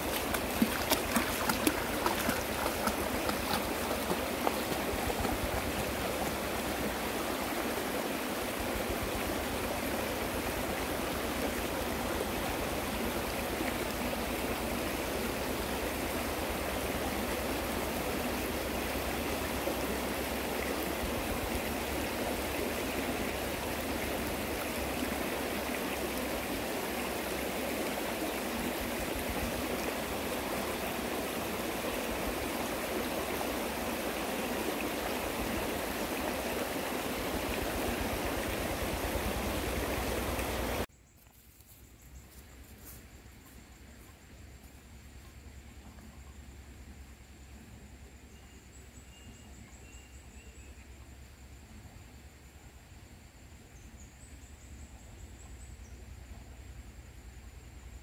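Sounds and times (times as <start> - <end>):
flowing water rushing: 0.0 - 40.9.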